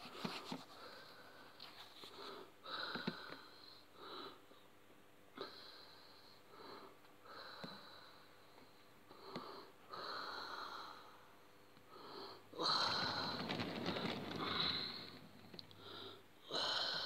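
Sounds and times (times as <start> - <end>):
faint breathing: 5.4 - 17.0.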